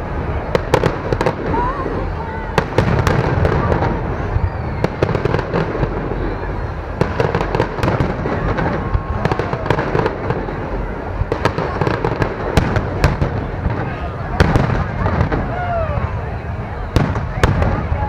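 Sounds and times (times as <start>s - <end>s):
fireworks pops and crackles: 0.0s - 18.0s.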